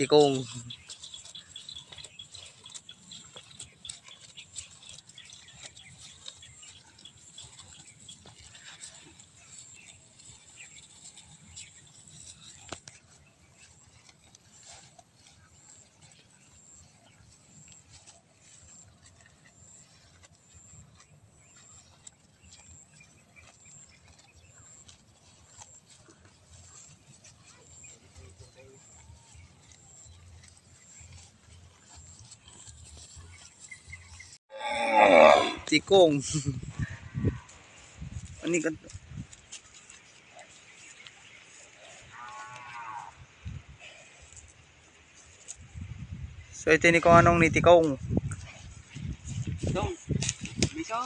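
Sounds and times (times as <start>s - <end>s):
cow chewing grass: 0.0s - 51.0s
wind rumble on microphone: 36.4s - 39.6s, 42.2s - 51.0s.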